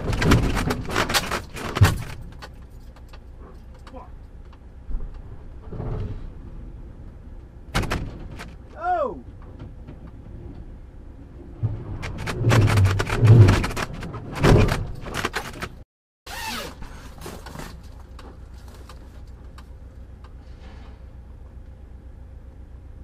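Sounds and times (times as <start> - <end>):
trailer banging and scraping truck: 0.0 - 3.8, 4.7 - 15.8, 20.4 - 21.4
steady low hum: 0.0 - 15.8, 16.8 - 23.0.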